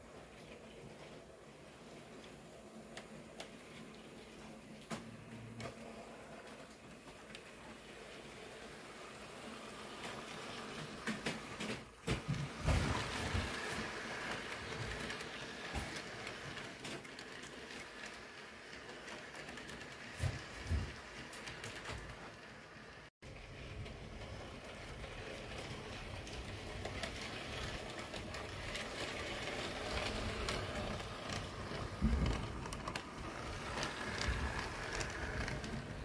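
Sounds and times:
model train running on track: 0:12.5 - 0:36.0.

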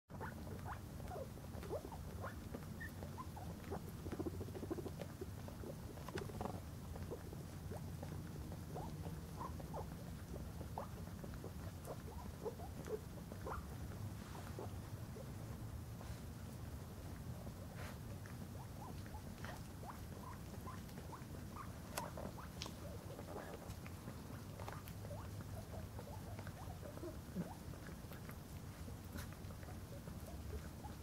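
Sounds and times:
guinea pig squeaks: 0:00.1 - 0:31.0
dog licking: 0:16.2 - 0:31.0.

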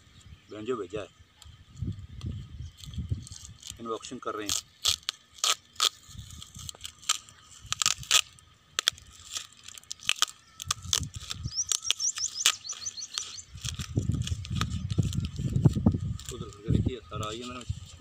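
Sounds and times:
plastic wrapping crackling and tearing: 0:02.7 - 0:18.0
bird twittering: 0:10.3 - 0:15.4.

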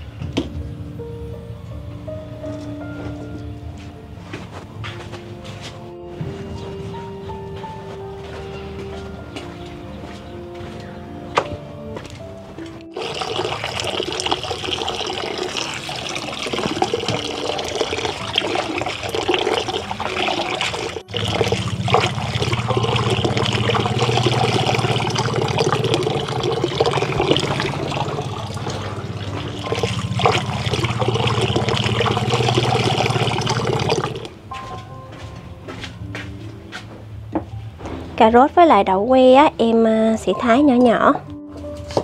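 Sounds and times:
water running onto vegetables: 0:12.9 - 0:34.3
water splashing into a basin: 0:12.9 - 0:34.3.

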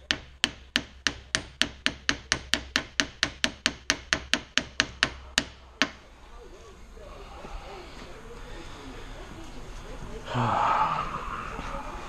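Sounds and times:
hammer tapping on metal: 0:00.0 - 0:06.0.

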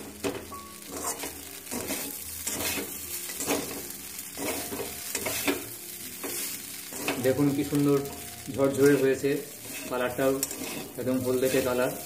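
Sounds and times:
sizzling: 0:00.0 - 0:12.0
metal spatula scraping pan: 0:00.9 - 0:07.4, 0:08.8 - 0:12.0.

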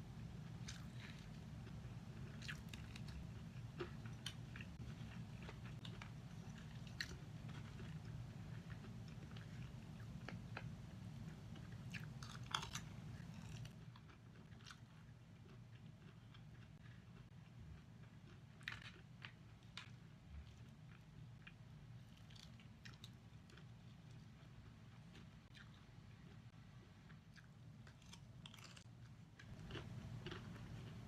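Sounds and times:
steady low hum: 0:00.0 - 0:31.0
fried chicken crunching: 0:00.6 - 0:10.3, 0:11.9 - 0:16.6, 0:27.4 - 0:31.0.

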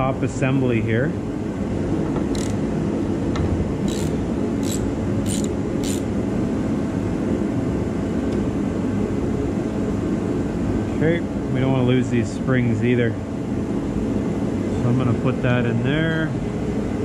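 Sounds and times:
low mechanical hum: 0:00.0 - 0:17.0
ratchet wrench clicking: 0:02.3 - 0:02.6, 0:03.9 - 0:06.1.

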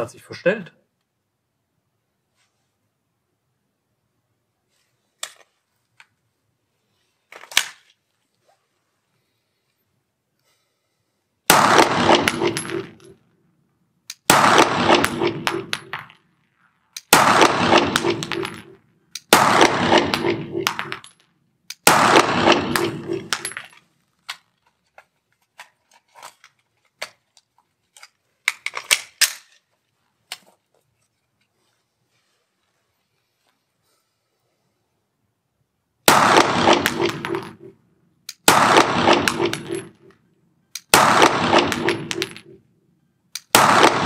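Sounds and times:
pistol handling clicks: 0:19.1 - 0:19.3, 0:38.3 - 0:38.5, 0:40.7 - 0:40.9, 0:43.3 - 0:43.5.

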